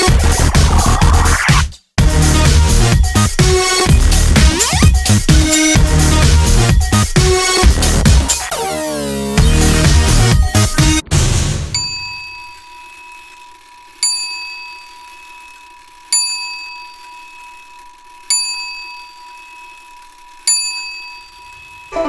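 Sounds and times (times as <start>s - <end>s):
bright bell-like chime: 11.7s - 22.0s.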